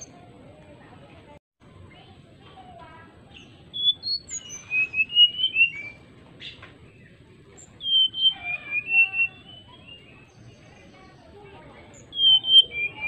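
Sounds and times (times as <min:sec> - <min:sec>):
bird singing flute-like whistles: 0:03.7 - 0:06.0, 0:07.6 - 0:10.4, 0:11.9 - 0:13.0.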